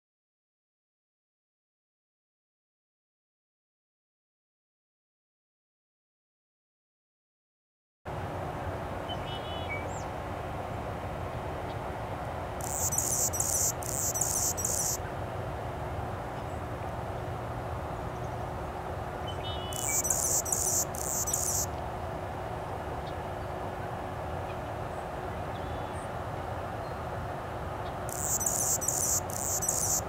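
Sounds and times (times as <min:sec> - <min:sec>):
hummingbird buzzy song: 0:12.6 - 0:15.0, 0:19.3 - 0:21.7, 0:28.1 - 0:30.0.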